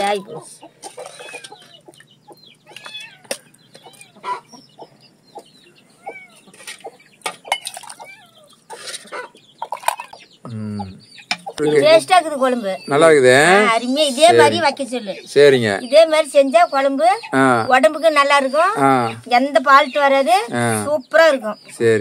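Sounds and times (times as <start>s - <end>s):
chickens clucking and peeping: 0.0s - 22.0s
ladle clinking on metal plates: 6.5s - 8.0s, 8.7s - 10.2s.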